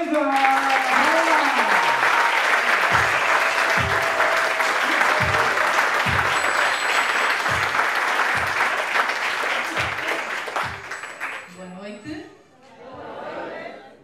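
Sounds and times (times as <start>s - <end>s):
audience applauding: 0.0s - 11.6s
music with low beat: 2.8s - 8.9s, 9.7s - 11.2s.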